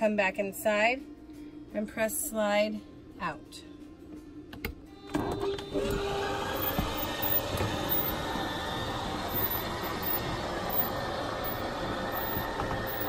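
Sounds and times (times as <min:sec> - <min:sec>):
electric slide-out mechanism running: 0:05.1 - 0:13.0.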